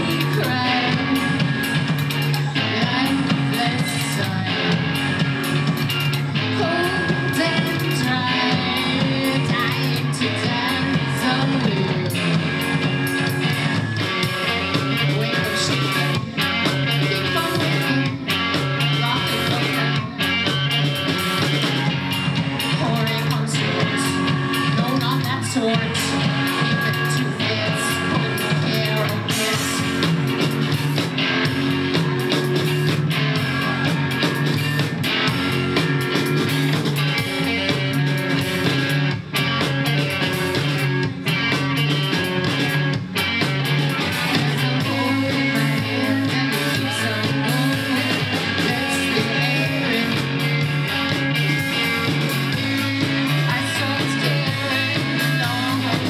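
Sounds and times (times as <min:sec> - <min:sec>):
woman singing: 0:00.0 - 0:04.8, 0:06.5 - 0:12.4, 0:14.2 - 0:20.2, 0:22.5 - 0:30.0, 0:44.1 - 0:51.6, 0:52.5 - 0:56.0
drum kit: 0:00.0 - 0:56.0
electric guitar: 0:00.0 - 0:56.0.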